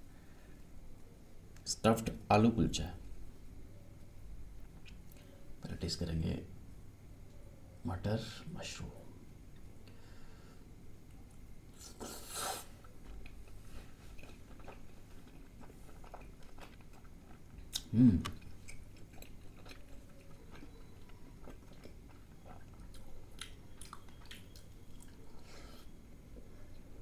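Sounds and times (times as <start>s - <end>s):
wet chewing mouth clicks: 14.2s - 25.3s
noisy bite: 17.7s - 18.5s.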